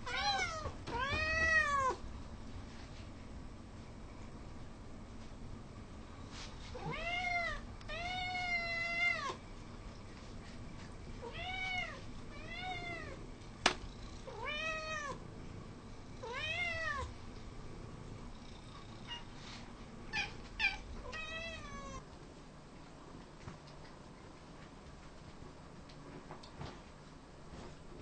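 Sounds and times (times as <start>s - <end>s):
cats meowing: 0.0s - 2.0s, 20.1s - 22.0s.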